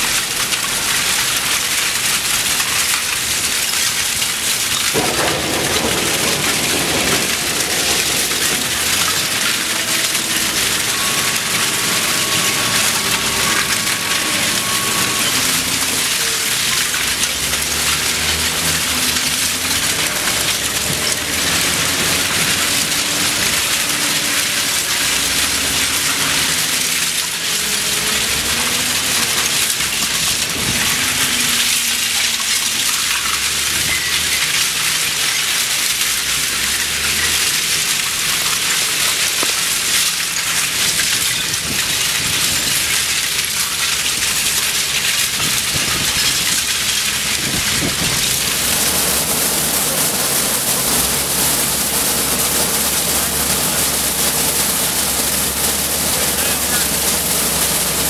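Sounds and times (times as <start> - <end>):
low machinery drone: 2.4 - 58.0
metal scrap clattering onto pile: 3.6 - 35.7.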